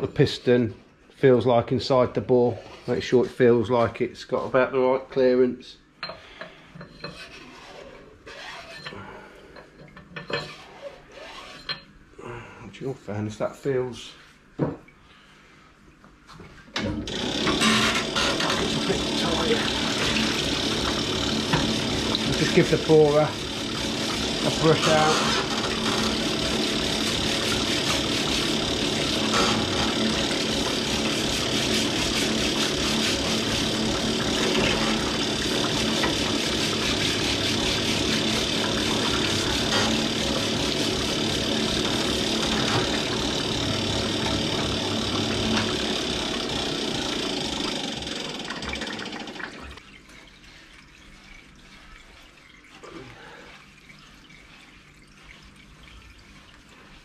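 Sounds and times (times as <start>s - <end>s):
pump hum: 16.8s - 57.0s
cleaning fluid flowing: 16.9s - 57.0s.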